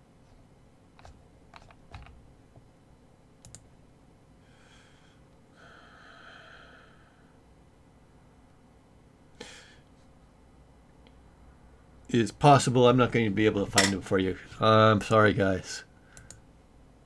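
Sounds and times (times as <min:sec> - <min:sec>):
computer keyboard clicks: 0:03.4 - 0:03.6
faint hissing: 0:04.4 - 0:07.5.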